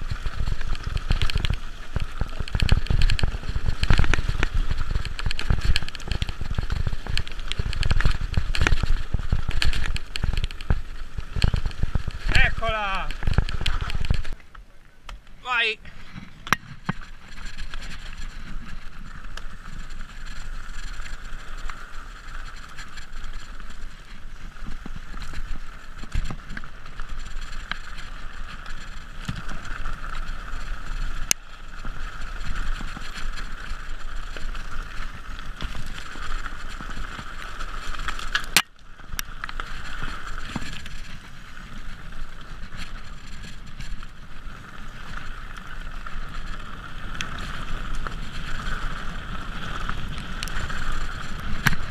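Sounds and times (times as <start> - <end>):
bike tyres rolling over stones: 0.0 - 51.9.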